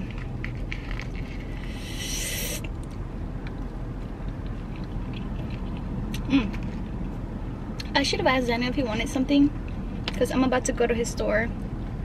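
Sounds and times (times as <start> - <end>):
person chewing: 1.0 - 6.7.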